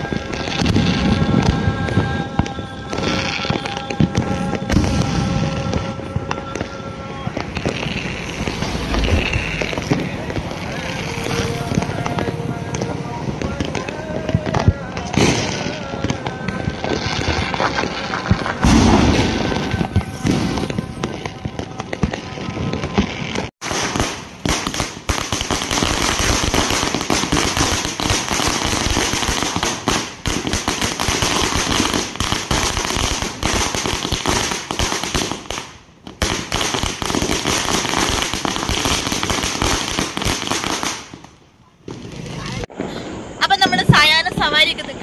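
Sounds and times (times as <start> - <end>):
fireworks: 0.0 - 45.0
string of firecrackers: 0.0 - 45.0
faint music: 8.4 - 22.9.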